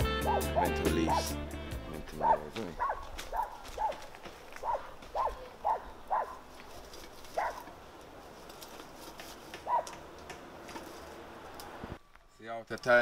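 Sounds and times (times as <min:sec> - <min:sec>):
dog yapping: 0:00.2 - 0:01.3, 0:02.2 - 0:06.4, 0:07.4 - 0:07.7, 0:09.6 - 0:10.0.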